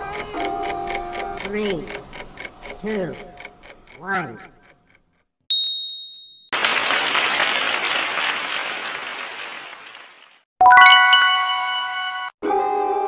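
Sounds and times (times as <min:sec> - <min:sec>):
bell-like chime: 0:05.5 - 0:06.5, 0:10.6 - 0:12.4
high ding: 0:05.5 - 0:06.6, 0:10.6 - 0:12.3
recorded applause: 0:06.6 - 0:11.1.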